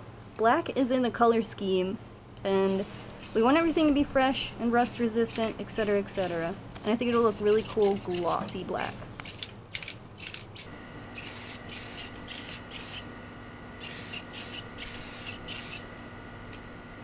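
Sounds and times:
spray paint can hissing: 2.7 - 6.5, 7.1 - 13.0, 13.8 - 15.8.

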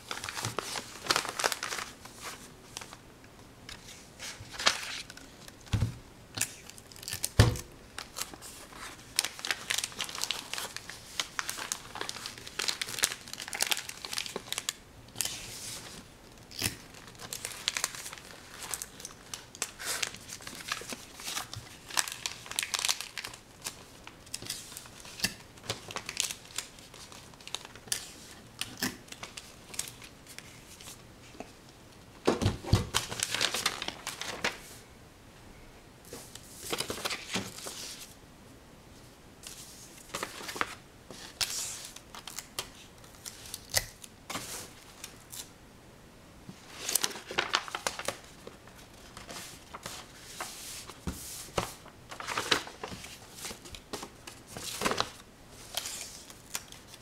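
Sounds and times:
crinkling and crackling: 46.5 - 57.0.

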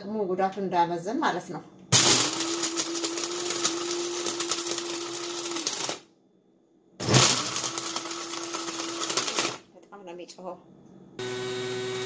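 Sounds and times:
electric spice grinder whining: 2.0 - 6.0, 7.0 - 9.6, 11.2 - 12.0.

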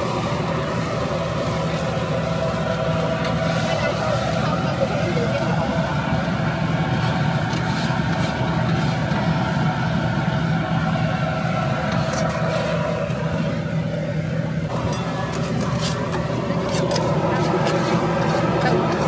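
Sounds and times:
low mechanical hum: 0.0 - 19.0
metal spatulas scraping griddle: 14.9 - 19.0.

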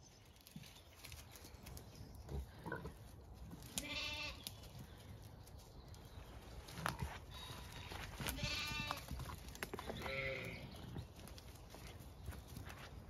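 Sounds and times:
sheep bleating: 3.8 - 4.4, 8.2 - 9.1, 9.9 - 10.6.

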